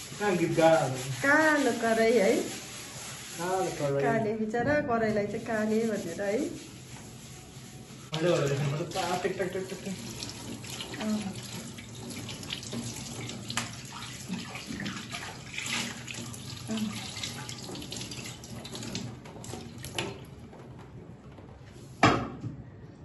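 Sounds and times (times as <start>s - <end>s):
tap water running: 8.0s - 20.6s.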